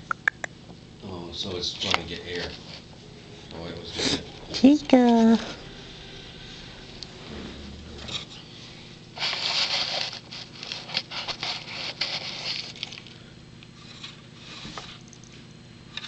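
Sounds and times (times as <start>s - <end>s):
scraping and rustling on microphone: 7.1s - 12.8s.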